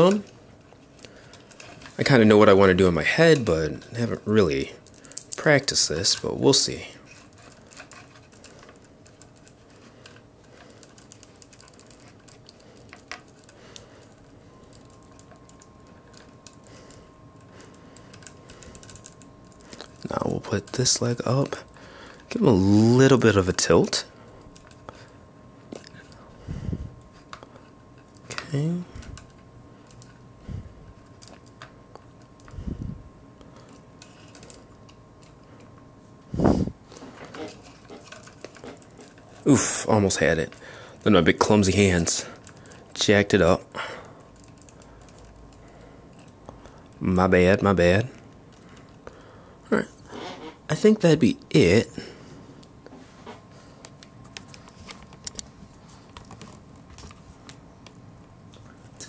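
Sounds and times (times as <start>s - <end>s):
plastic figure clicks and rustles: 7.0s - 16.6s, 37.1s - 39.5s.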